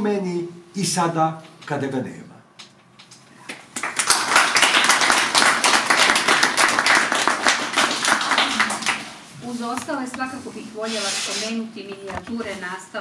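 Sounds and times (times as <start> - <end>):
audience applauding: 3.4 - 9.2.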